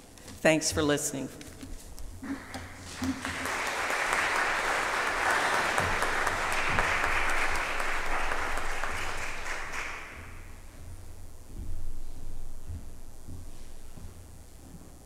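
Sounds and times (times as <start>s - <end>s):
low steady hum: 0.0s - 15.0s
congregation applauding: 2.2s - 10.4s.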